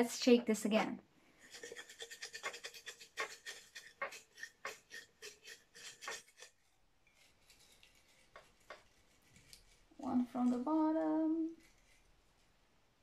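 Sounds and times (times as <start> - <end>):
paper slips rattling in ceramic mug: 1.4 - 10.6.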